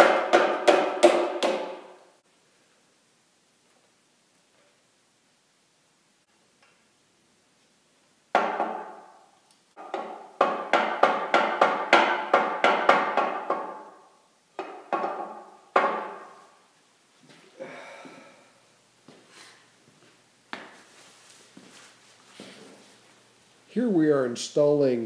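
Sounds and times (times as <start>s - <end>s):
metallic knocks on iron housing: 8.4s - 9.1s, 14.6s - 16.3s.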